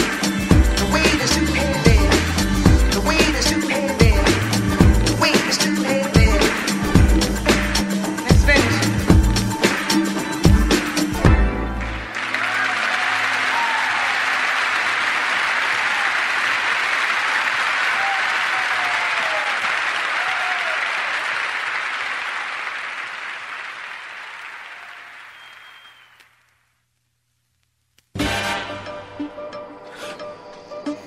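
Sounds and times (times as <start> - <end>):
crowd applauding: 0.0 - 2.3, 6.4 - 26.4
music: 0.0 - 16.1, 28.1 - 31.0.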